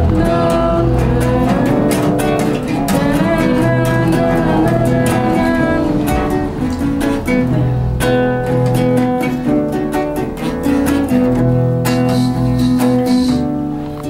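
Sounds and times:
acoustic guitar strumming: 0.0s - 14.0s.

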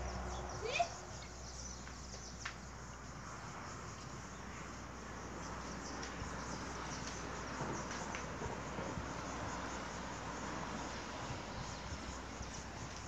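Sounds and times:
bird or insect calls: 0.0s - 13.0s
faint insects chirping: 0.0s - 13.0s.

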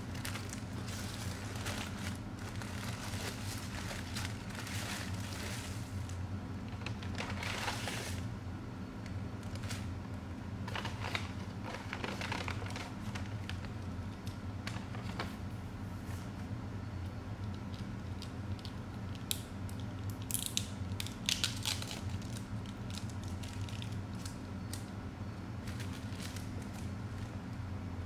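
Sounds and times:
paper bag rustling: 0.0s - 8.3s, 10.6s - 13.7s
steady low hum: 0.0s - 28.0s.

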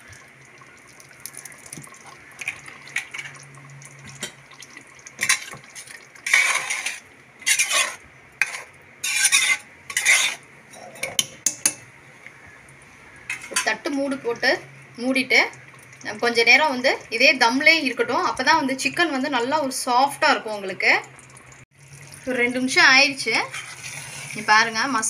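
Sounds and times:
spoon scraping metal pot: 5.2s - 11.8s, 13.3s - 13.8s, 23.3s - 24.4s
spoon clicking on pot: 11.0s - 11.8s.

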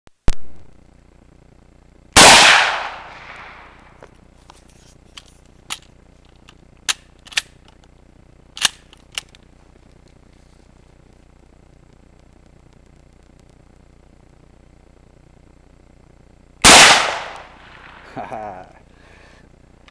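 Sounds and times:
rifle shot echoing: 2.2s - 4.0s, 16.6s - 18.5s.

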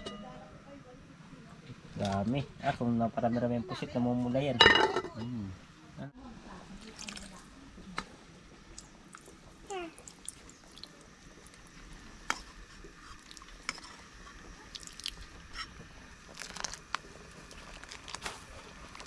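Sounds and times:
broth trickling into pot: 6.7s - 19.0s.

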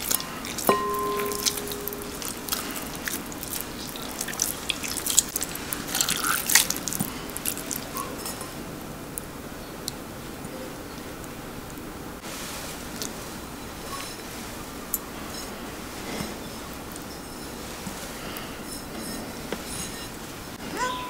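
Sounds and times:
wet squelching of cheese curd: 0.0s - 8.2s
water dripping into bowl: 0.0s - 8.6s.

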